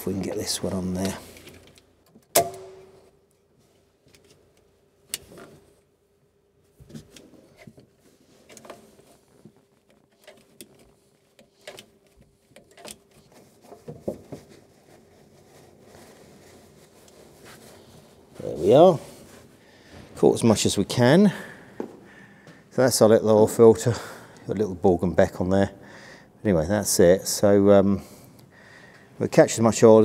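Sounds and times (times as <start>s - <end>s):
faint steady hum: 0.0s - 30.0s
paper towel rustling: 6.7s - 20.5s.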